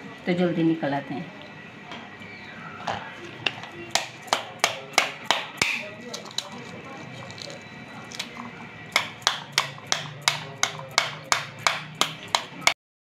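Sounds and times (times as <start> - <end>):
knife handle tapping pomegranate: 3.9 - 6.5, 9.0 - 12.8.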